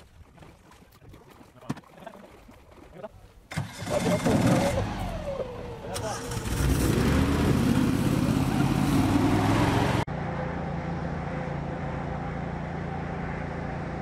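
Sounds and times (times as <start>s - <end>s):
hovercraft engine and fan: 3.7s - 14.0s.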